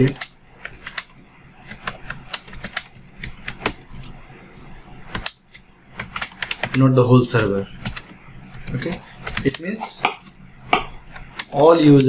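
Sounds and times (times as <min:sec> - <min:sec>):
computer keyboard key clicks: 0:00.1 - 0:04.1.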